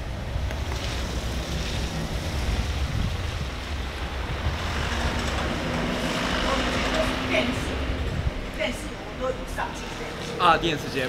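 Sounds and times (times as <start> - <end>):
wind buffeting microphone: 0.0 - 10.2
steady outdoor hiss: 0.0 - 11.0.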